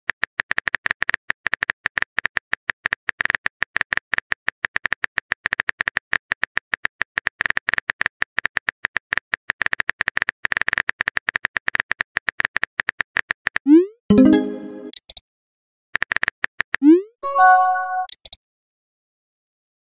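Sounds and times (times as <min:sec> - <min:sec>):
brief pitched tone: 0:17.2 - 0:18.2.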